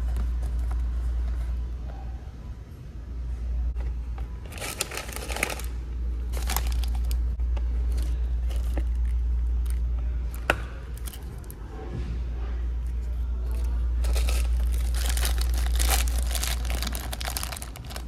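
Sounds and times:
steady low hum: 0:00.0 - 0:18.0
packaging crinkling: 0:04.5 - 0:07.2, 0:14.0 - 0:18.0.

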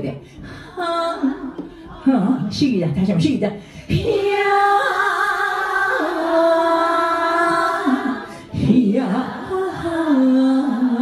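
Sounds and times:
woman singing into a microphone: 0:03.9 - 0:11.0.

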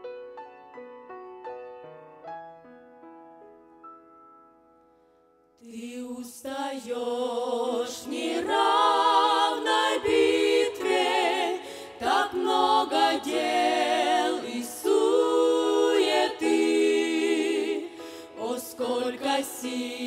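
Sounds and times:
women's choir singing a hymn: 0:05.6 - 0:20.0.

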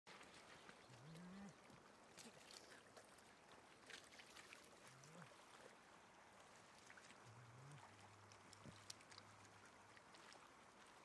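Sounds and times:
shallow water splashing: 0:00.1 - 0:11.0
light ticks: 0:08.2 - 0:10.3.

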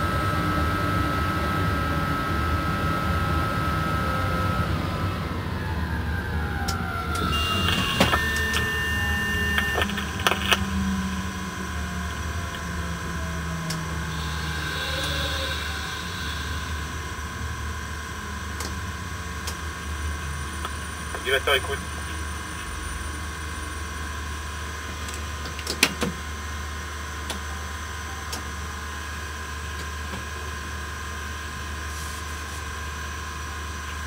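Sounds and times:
whine falling in pitch: 0:00.0 - 0:24.6
electric locomotive hum and rumble: 0:00.0 - 0:34.0
steady electronic tone: 0:07.0 - 0:24.5
clicks: 0:09.4 - 0:11.2.

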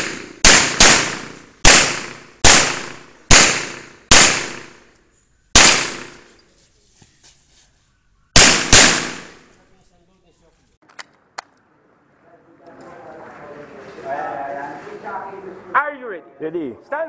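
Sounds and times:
pistol shots: 0:00.0 - 0:04.9, 0:05.5 - 0:06.3, 0:08.4 - 0:09.5.

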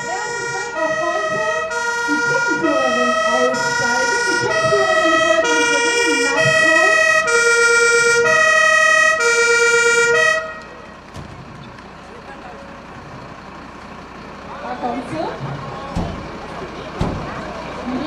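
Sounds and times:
fire engine two-tone siren: 0:00.0 - 0:11.1.

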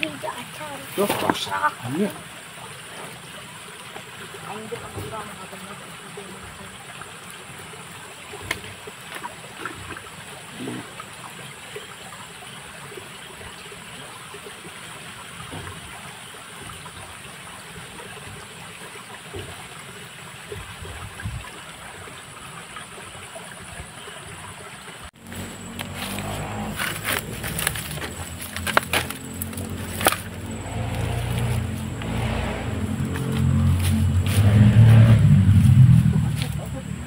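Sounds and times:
small stream trickling: 0:00.0 - 0:37.0.

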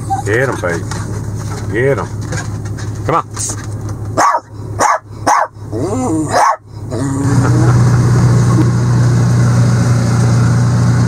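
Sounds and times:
engine idling: 0:00.0 - 0:11.0
small dog barking: 0:04.2 - 0:05.6, 0:06.3 - 0:06.6.

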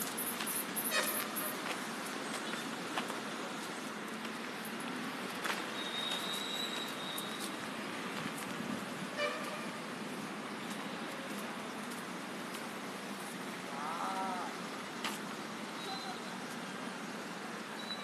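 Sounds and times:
outdoor background noise: 0:00.0 - 0:18.0
distant vehicle horn toot: 0:00.9 - 0:01.4, 0:09.2 - 0:09.8.

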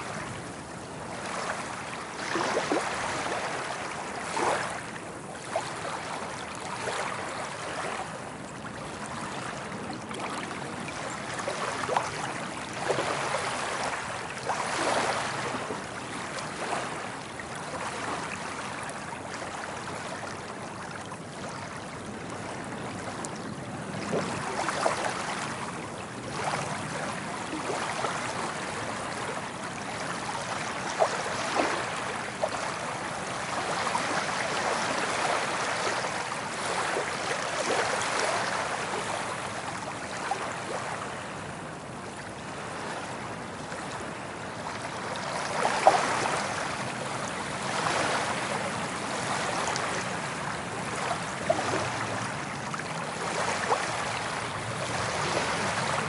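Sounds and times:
ocean waves on a beach: 0:00.0 - 0:56.0
water splashing and trickling: 0:24.0 - 0:41.0, 0:44.6 - 0:56.0.

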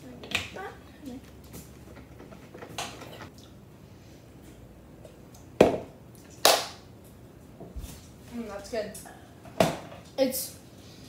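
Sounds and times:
plastic cup knocks and clatters: 0:05.6 - 0:05.9.

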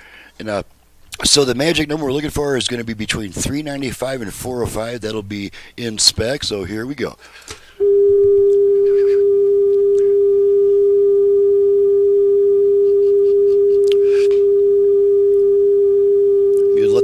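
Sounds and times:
steady test tone: 0:07.8 - 0:17.0.

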